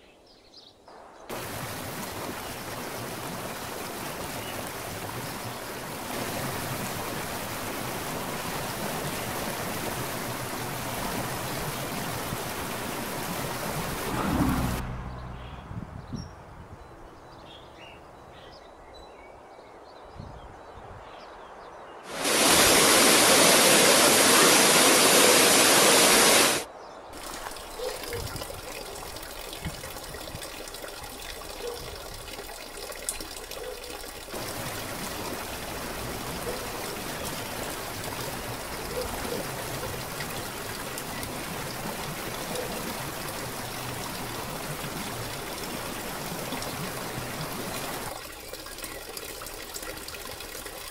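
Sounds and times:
loud rush of water: 1.3 - 14.8, 22.0 - 50.9
waterfall pouring onto rocks: 1.3 - 14.8, 22.1 - 50.9
water trickling from a flume: 27.2 - 50.9.

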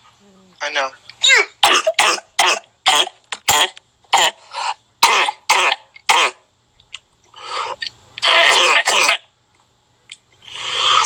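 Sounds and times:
person coughing: 1.2 - 4.4, 5.0 - 6.4, 8.3 - 9.3.

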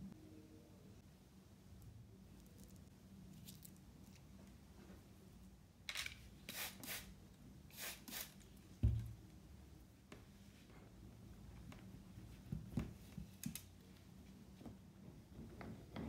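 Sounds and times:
spray bottle spraying: 6.5 - 7.1, 7.7 - 8.4.

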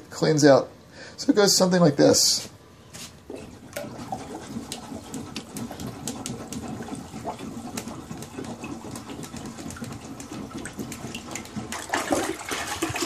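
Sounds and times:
plunger in toilet water sloshing: 3.3 - 13.0.

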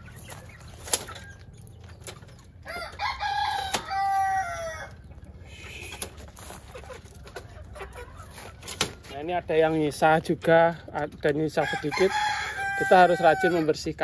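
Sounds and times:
rooster crowing: 2.6 - 5.0, 11.6 - 13.7.

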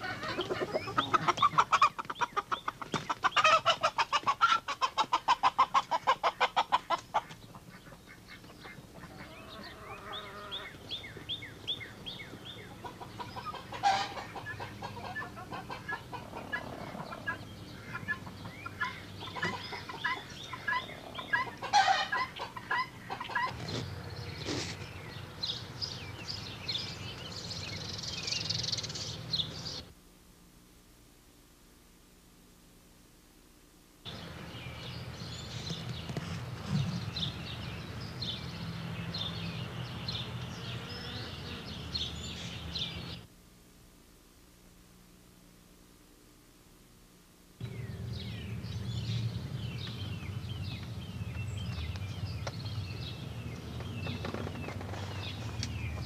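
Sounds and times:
chickens clucking: 0.0 - 24.9.

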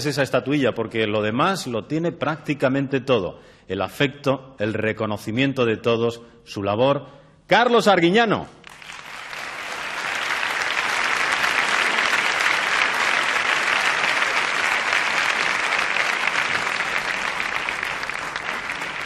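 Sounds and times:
audience applauding: 8.6 - 19.0.

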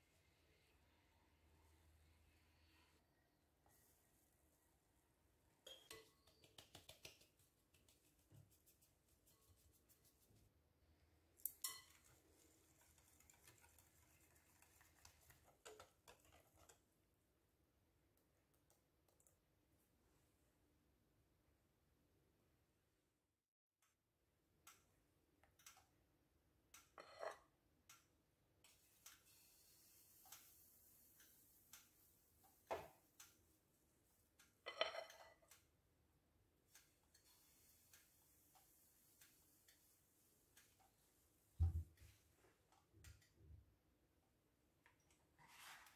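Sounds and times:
batter stirring in glass bowl: 11.7 - 17.0.

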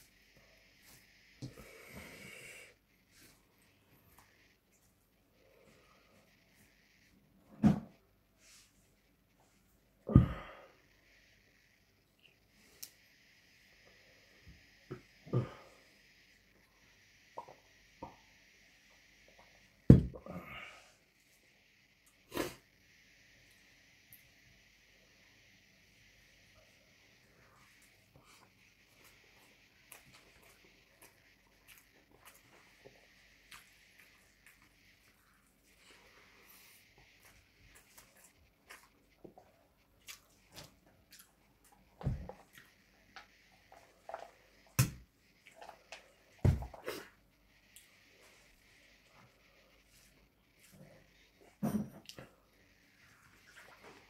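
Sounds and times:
wet chewing: 37.2 - 42.7.

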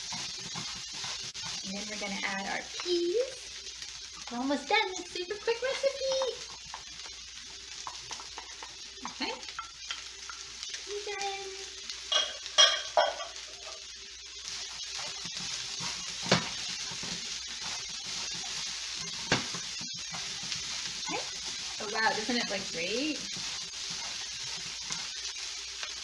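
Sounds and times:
wooden spatulas scraping a pan: 0.0 - 2.5, 14.9 - 25.2
fried rice sizzling in a pan: 0.0 - 26.0
wood knocking against a pan: 12.1 - 13.4, 16.2 - 16.6, 19.2 - 19.6.

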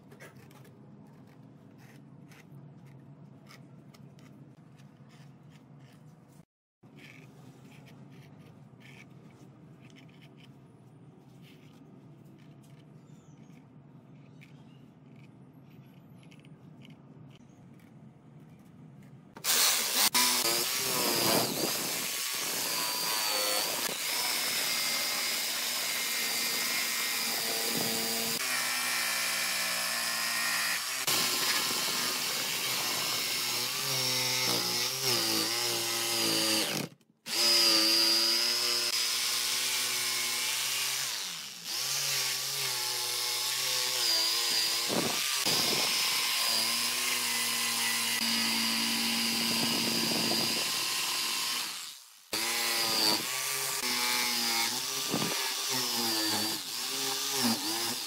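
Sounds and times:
power tools cutting wood: 19.4 - 58.0.

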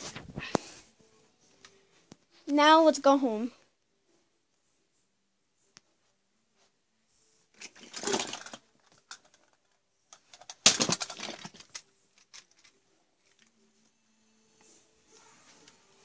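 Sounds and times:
toys rustling and clattering: 7.5 - 13.6.

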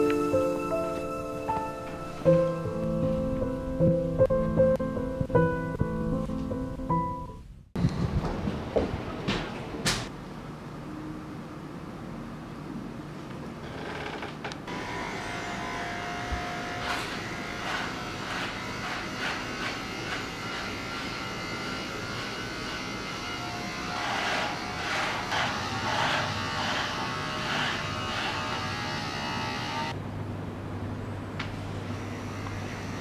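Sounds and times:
electric beard trimmer buzzing: 14.7 - 29.9, 32.0 - 33.0
blade rasping through hair: 15.6 - 29.9.

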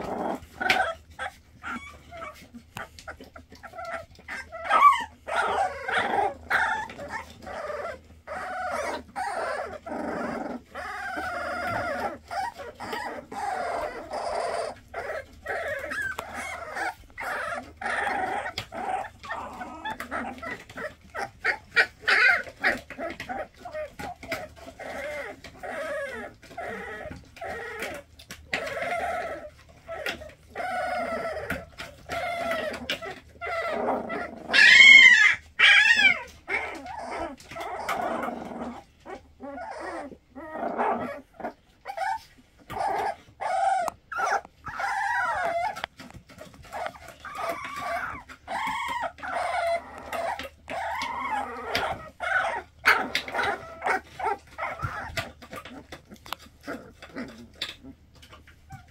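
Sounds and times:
puppies whimpering and squeaking: 0.0 - 58.9
high-pitched puppy cries: 0.2 - 58.9.

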